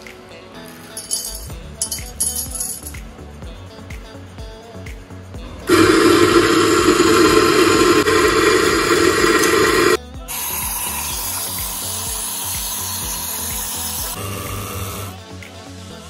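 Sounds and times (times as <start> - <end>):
coffee grinder grinding beans: 5.7 - 15.2
steam wand hissing frothing milk: 5.7 - 15.2.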